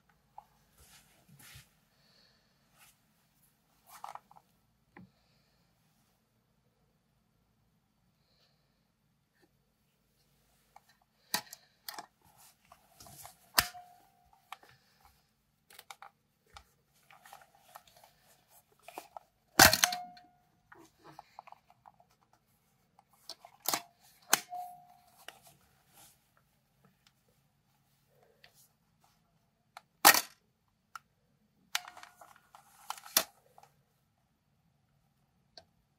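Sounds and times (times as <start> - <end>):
camera handling clicks and knocks: 18.9 - 20.3.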